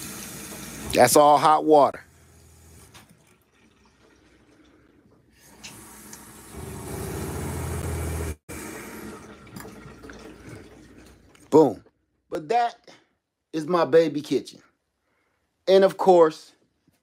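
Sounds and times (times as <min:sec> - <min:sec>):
faucet water running into steel sink: 0:00.0 - 0:01.2, 0:02.1 - 0:07.1, 0:08.5 - 0:11.4
water pump humming: 0:02.0 - 0:11.4.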